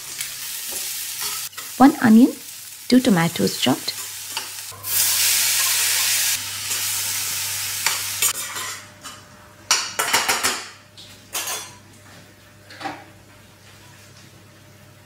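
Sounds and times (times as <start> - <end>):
tomatoes sizzling in hot oil: 0.0 - 8.6
metal spoon scraping a pan: 4.0 - 6.9.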